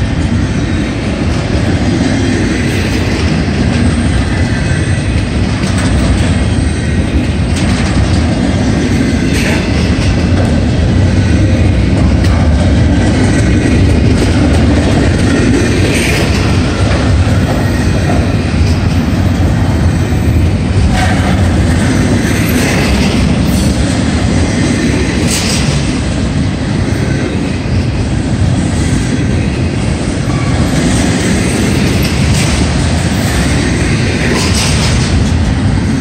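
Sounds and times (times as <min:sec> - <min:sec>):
clickety-clack over rail joints: 0:00.0 - 0:36.0
freight train wheels rumbling: 0:00.0 - 0:36.0.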